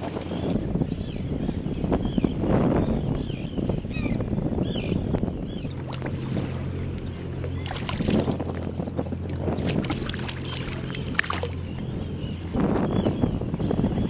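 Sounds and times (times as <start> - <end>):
outboard motor idling: 0.0 - 14.0
wind noise on microphone: 0.0 - 14.0
fish splashing in water: 5.7 - 11.8.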